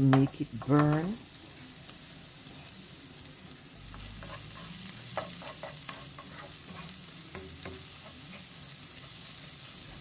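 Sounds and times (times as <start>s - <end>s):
food sizzling in butter: 0.0s - 10.0s
spatula scraping pan: 3.9s - 9.9s.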